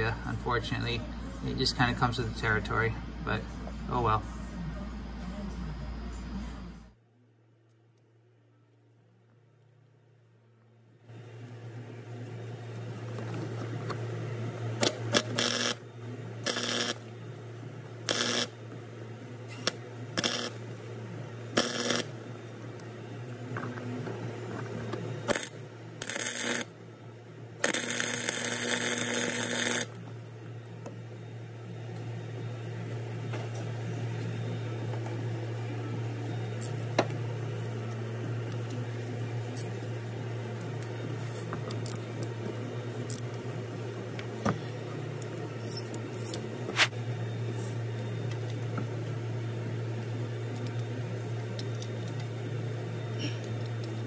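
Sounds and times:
steady low hum: 0.0 - 54.0
welding arc crackling: 14.8 - 15.8, 16.4 - 17.0, 18.0 - 18.6, 19.6 - 20.8, 21.5 - 22.2, 25.2 - 26.7, 27.6 - 30.0.

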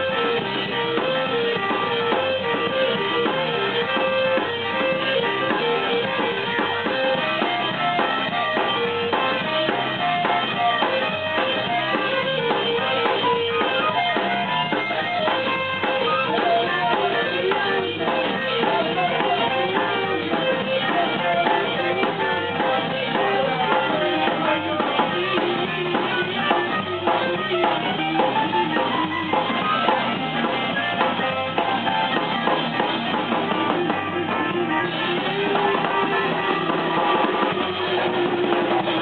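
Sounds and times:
drum kit: 0.0 - 39.0
guitar holding notes: 0.0 - 39.0.

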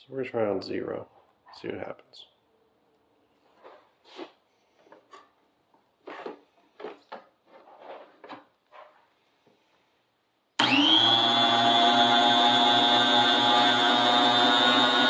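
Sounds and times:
faint handling noises: 2.9 - 9.9
food slicer motor whining: 10.6 - 15.0.

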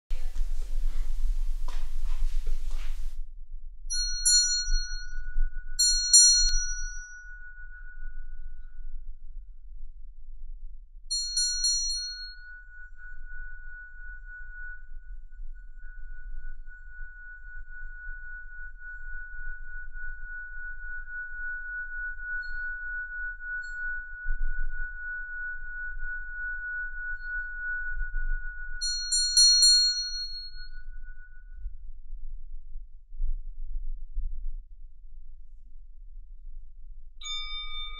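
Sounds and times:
rustling: 0.1 - 3.2
small hand bell ringing: 3.9 - 5.2, 5.8 - 7.3, 11.1 - 12.5, 28.8 - 30.8
singing bowl ringing tone: 3.9 - 9.4, 11.1 - 31.8, 37.2 - 37.9.

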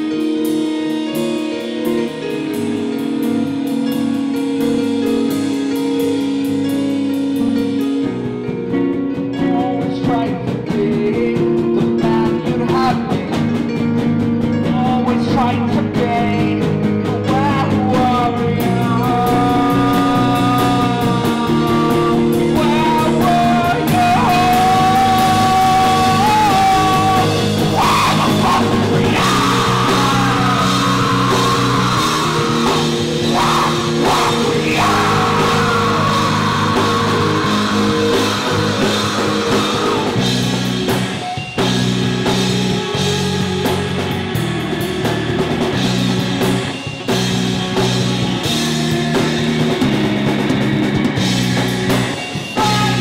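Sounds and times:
drum kit: 0.0 - 53.0
electric guitar chords: 0.0 - 53.0
held melody line: 0.0 - 53.0.

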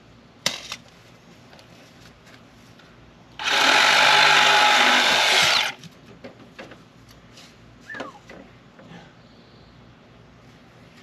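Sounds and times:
cordless drill running: 3.4 - 5.8.

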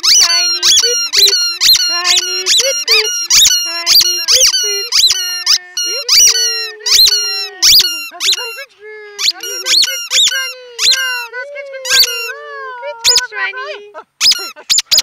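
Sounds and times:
dog chewing toy: 0.0 - 8.6, 9.2 - 11.3, 11.9 - 12.3
squeaky toy squeaking: 0.0 - 13.4, 14.2 - 15.0.

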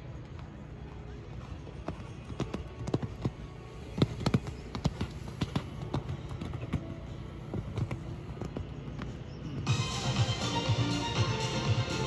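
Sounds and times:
horse hoofbeats on sand: 0.0 - 10.9.

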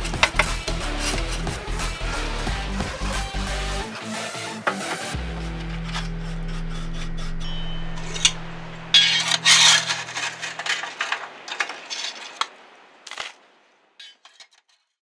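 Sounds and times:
background music: 0.0 - 11.6
brush sweeping ash: 5.5 - 13.4.

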